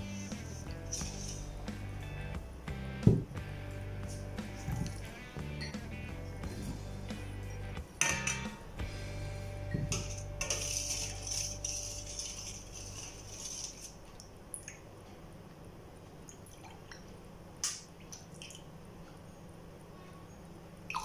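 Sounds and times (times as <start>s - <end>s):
metal spoon scraping steel bowl: 0.0s - 1.7s, 9.7s - 14.0s
spoon clinking glass cups: 5.6s - 5.9s, 8.0s - 8.6s, 9.7s - 13.9s.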